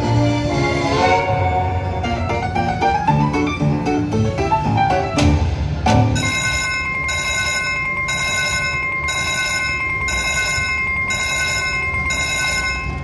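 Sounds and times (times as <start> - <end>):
slot machine electronic bells ringing: 6.0 - 13.0.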